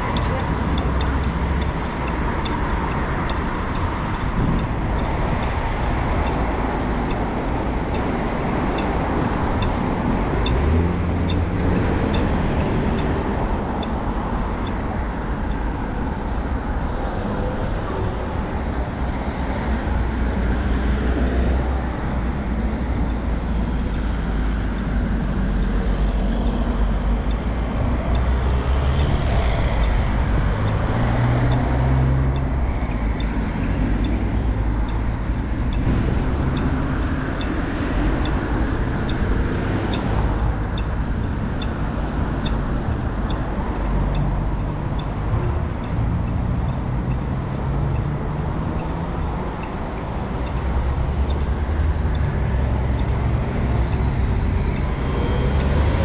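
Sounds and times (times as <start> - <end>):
crossing signal ticking: 0.0 - 18.7, 21.4 - 56.0
cars passing: 0.0 - 56.0.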